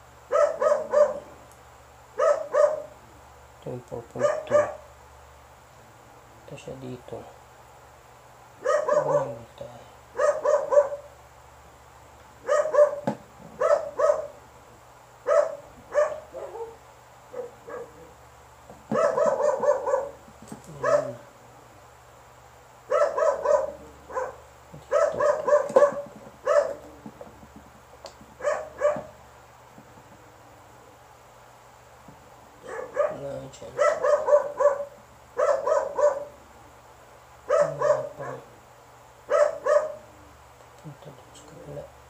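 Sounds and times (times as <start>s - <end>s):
dog barking: 0.3s - 1.3s, 2.2s - 3.0s, 4.2s - 4.9s, 8.6s - 9.4s, 10.2s - 11.2s, 12.4s - 14.4s, 15.2s - 18.1s, 18.9s - 21.2s, 22.9s - 26.8s, 28.4s - 29.2s, 32.6s - 36.4s, 37.5s - 38.5s, 39.3s - 40.1s.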